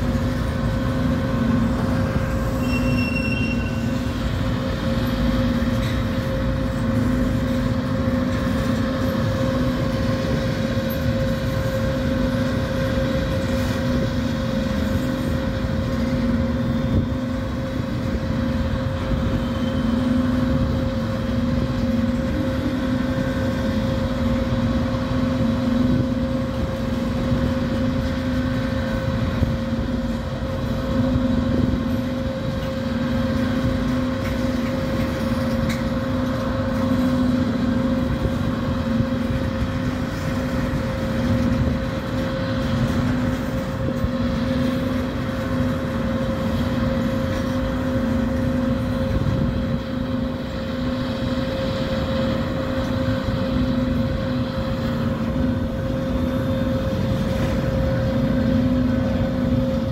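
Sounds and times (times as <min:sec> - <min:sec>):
low wavering hum: 0:00.0 - 0:59.9
train wheels rumbling on rails: 0:00.0 - 0:59.9.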